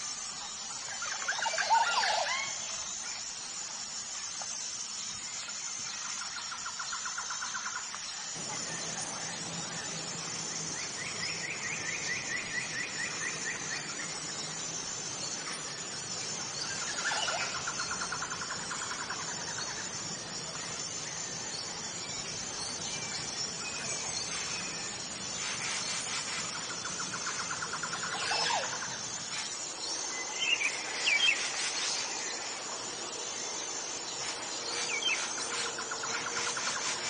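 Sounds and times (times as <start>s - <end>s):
thin high-pitched whine: 0.0s - 37.0s
birds squealing calls: 23.5s - 32.0s.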